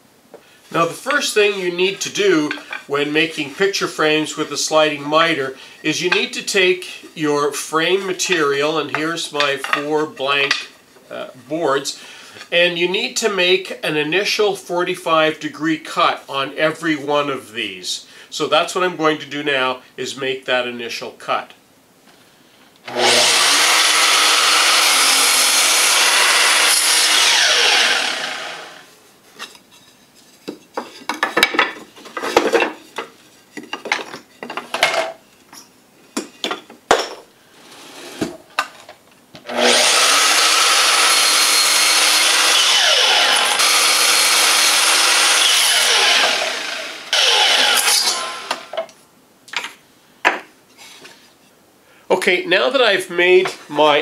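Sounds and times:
mitre saw cutting wood: 22.8 - 28.9, 39.5 - 48.8
boards knocking and clattering: 30.4 - 35.2.

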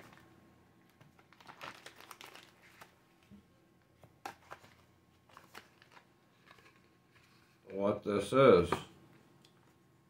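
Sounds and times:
plastic bag crinkling: 0.9 - 3.3, 4.3 - 7.4.

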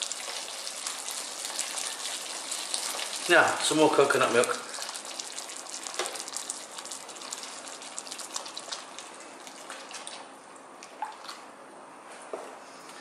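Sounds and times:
milk pouring into wok: 0.0 - 10.4
sauce sizzling: 0.0 - 10.6.

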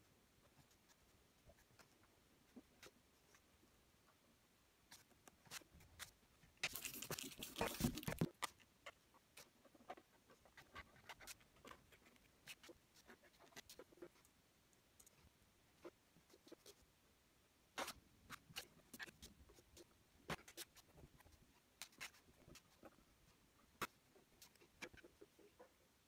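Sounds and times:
hand and paper rustling: 4.9 - 8.7
pen scratching on paper: 4.9 - 14.2, 17.8 - 23.0.

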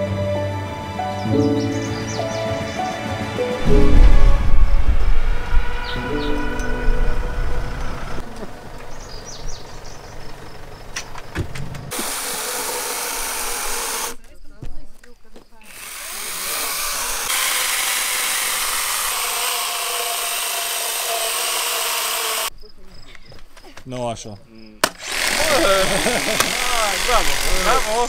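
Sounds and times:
music with sustained chords: 0.0 - 10.3
low rumble: 3.6 - 10.8
mini chainsaw cutting log: 11.9 - 14.2, 15.7 - 22.5, 24.8 - 28.0.

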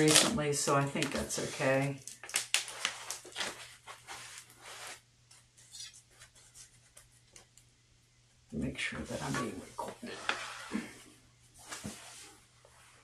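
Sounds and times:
foam packing wrap rustling: 0.0 - 5.0.

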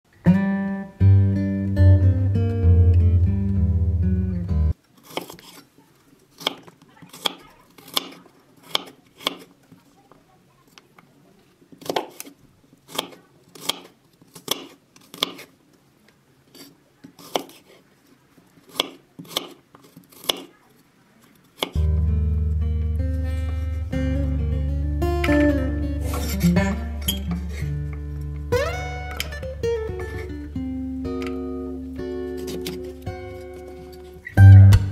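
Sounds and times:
acoustic guitar music: 0.1 - 4.8, 21.8 - 34.9
knife chopping on wooden board: 17.2 - 17.6, 18.7 - 20.5.

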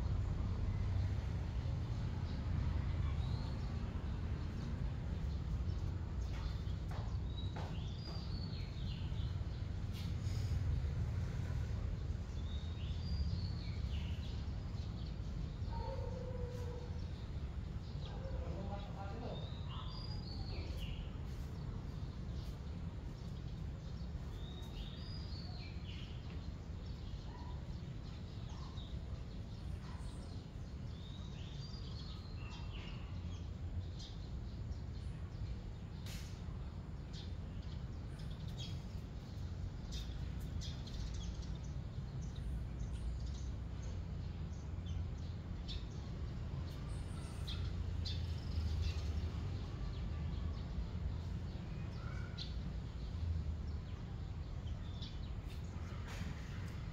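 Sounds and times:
small birds chirping: 0.0 - 56.9.

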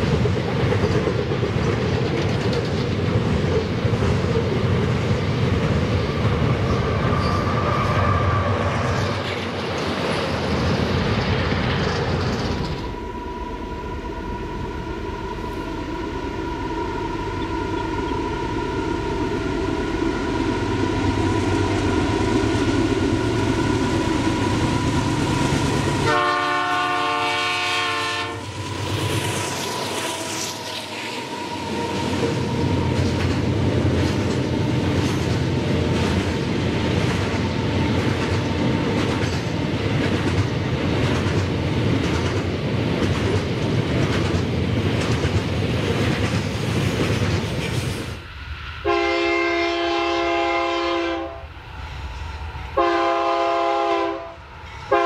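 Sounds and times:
train wheels clattering on rails: 0.0 - 13.0, 21.9 - 48.2
diesel locomotive engines: 0.0 - 55.0
train horn blast: 25.8 - 28.6, 48.8 - 51.5, 52.8 - 55.0.

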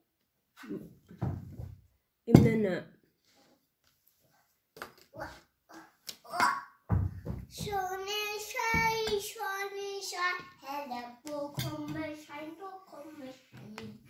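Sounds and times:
child singing wordless tune: 7.5 - 14.0.

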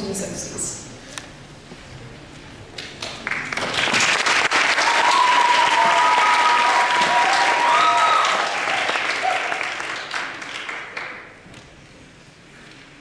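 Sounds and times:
audience applause: 3.0 - 11.4
crowd cheering: 3.4 - 11.1.

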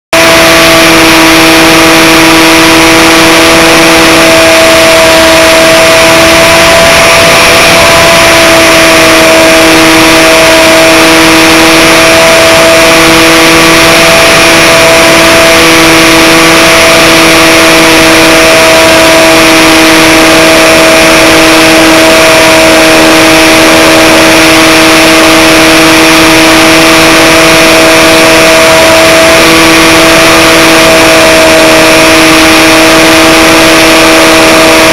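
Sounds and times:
electric motor and propeller whining: 0.0 - 34.9.

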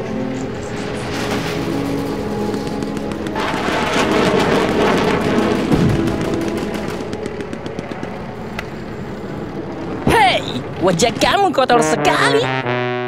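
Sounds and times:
film music: 0.0 - 13.0
rapid gunfire: 1.3 - 8.4.

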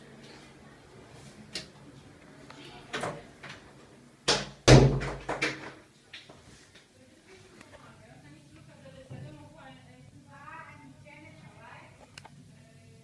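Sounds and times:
exhaust fan humming: 7.0 - 13.0.

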